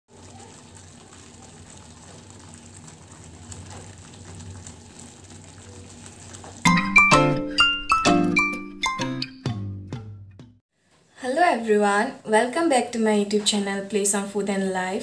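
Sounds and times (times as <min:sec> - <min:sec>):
gravy simmering bubbling: 0:00.1 - 0:07.1.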